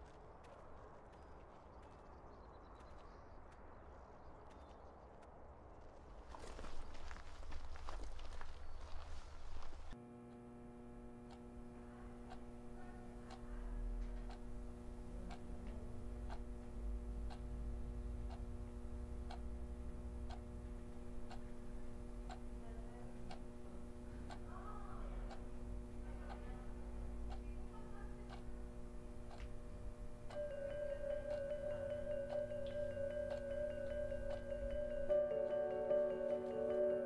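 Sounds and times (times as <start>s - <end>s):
clock ticking: 11.1s - 37.0s
drone of held tones: 29.7s - 37.0s.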